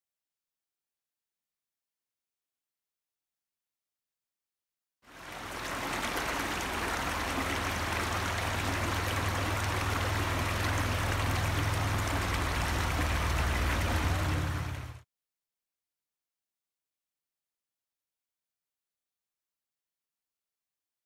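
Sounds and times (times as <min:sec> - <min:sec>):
creek running over rocks: 0:05.1 - 0:15.0.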